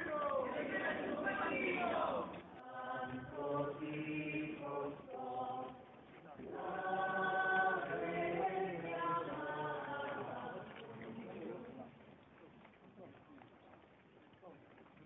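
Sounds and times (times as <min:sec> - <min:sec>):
group chanting in long notes: 0:00.0 - 0:11.2.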